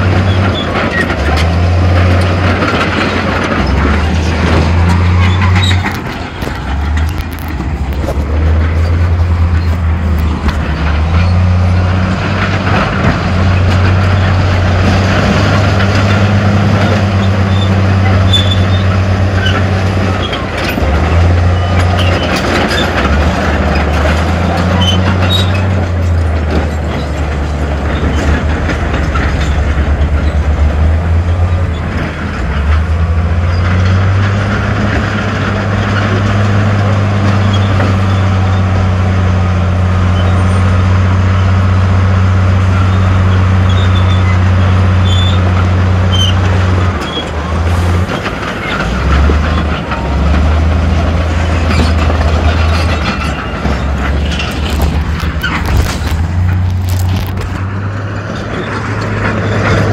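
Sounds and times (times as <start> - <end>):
heavy diesel engine running: 0.0 - 59.9.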